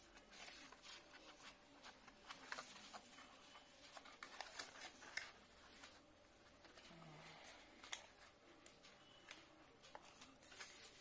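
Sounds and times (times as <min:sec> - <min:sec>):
cardboard packaging rustling: 0:00.0 - 0:07.0.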